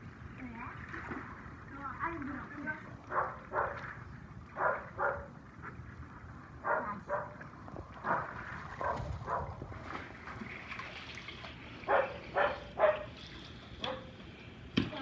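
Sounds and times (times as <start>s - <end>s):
water sloshing: 0.0s - 15.0s
dog barking: 3.1s - 3.8s, 4.6s - 5.3s, 6.6s - 7.4s, 8.1s - 9.5s, 11.9s - 13.1s, 13.8s - 14.1s.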